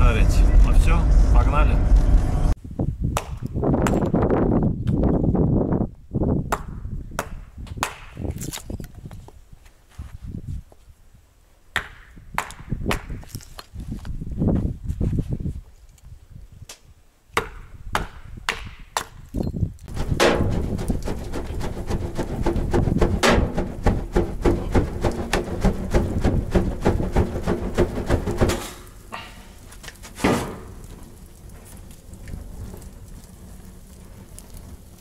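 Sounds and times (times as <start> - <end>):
hatchet chopping kindling: 17.4 - 19.2, 19.9 - 28.9
wood fire crackling: 19.7 - 35.0.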